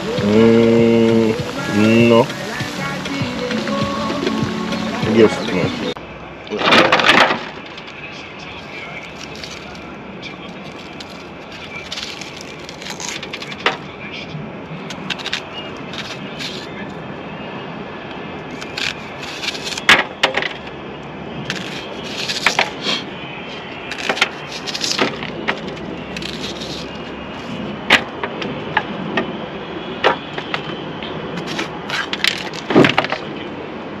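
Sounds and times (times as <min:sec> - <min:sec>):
knife cutting bell pepper: 0:14.9 - 0:16.7, 0:18.5 - 0:19.9, 0:21.5 - 0:23.1, 0:23.9 - 0:27.6
knife slicing onion: 0:23.9 - 0:27.6.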